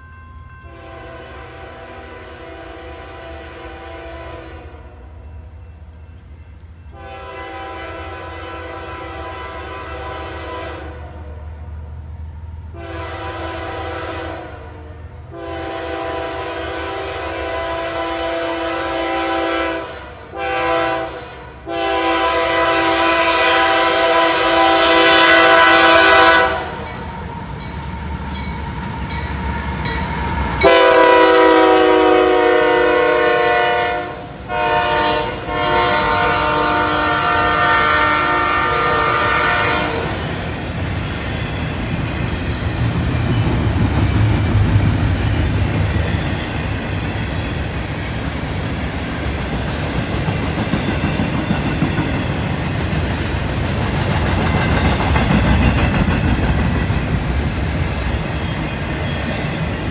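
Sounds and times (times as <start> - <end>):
train rumbling: 0.0 - 59.9
locomotive air horn blasts: 0.7 - 5.0, 6.9 - 11.4, 12.7 - 27.0, 30.6 - 40.3.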